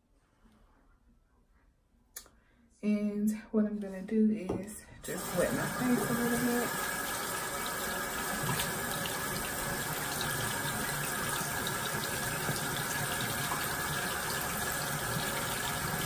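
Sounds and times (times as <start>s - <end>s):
tap water running into sink: 5.1s - 16.0s.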